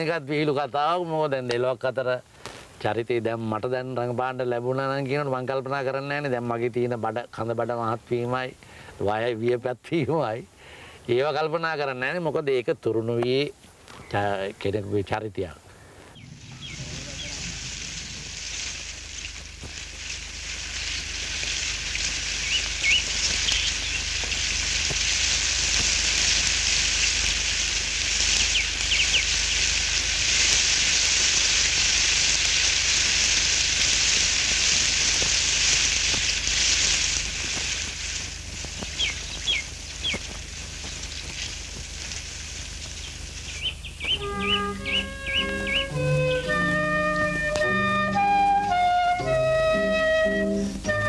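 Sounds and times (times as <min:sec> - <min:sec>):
steady high hiss: 0:00.0 - 0:51.0
short bird chirps: 0:16.1 - 0:17.7, 0:43.5 - 0:46.5.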